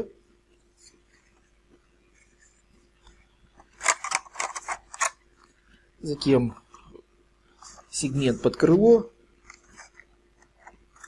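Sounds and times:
plastic parts clicking and scraping: 3.7 - 5.2.

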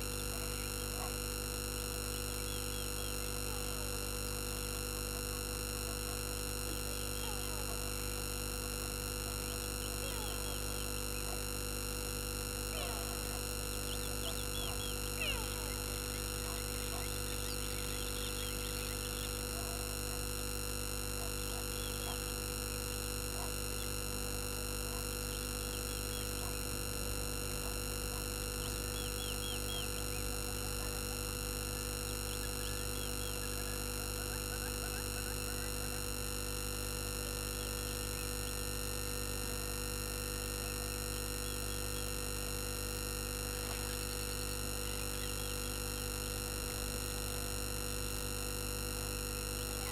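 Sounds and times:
electrical hum and whine: 0.0 - 49.9
faint bird chirps: 2.1 - 3.8, 12.7 - 20.1, 21.2 - 22.8, 24.9 - 26.6, 27.6 - 31.0, 31.7 - 36.0, 40.8 - 42.2, 44.8 - 46.4.

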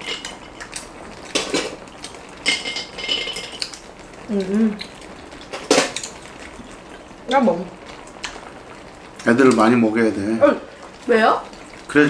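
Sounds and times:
cutlery clinking on ceramic dishes: 2.5 - 3.7.

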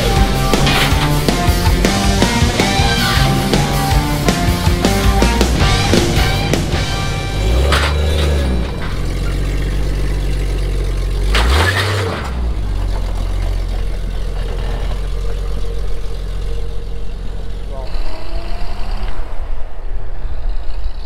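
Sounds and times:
rock music: 0.0 - 11.6
car engine pulling under load: 0.0 - 21.0.

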